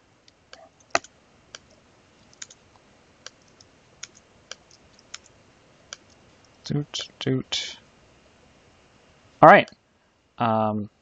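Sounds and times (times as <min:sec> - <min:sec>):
computer keyboard key clicks: 0:00.8 - 0:01.7.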